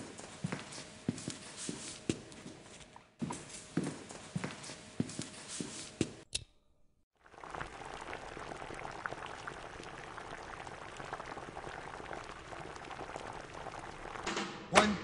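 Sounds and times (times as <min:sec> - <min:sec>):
pot boiling with bubbling crackle: 0:07.2 - 0:14.3.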